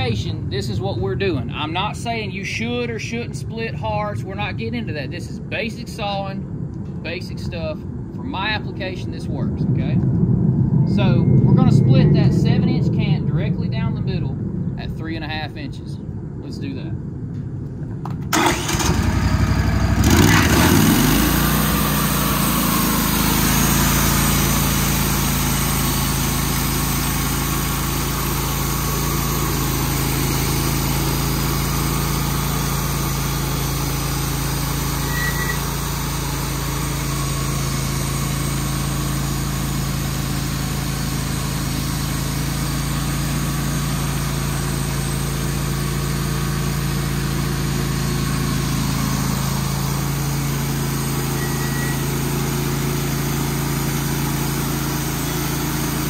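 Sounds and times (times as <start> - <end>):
sawmill gas engine running: 18.3 - 56.0.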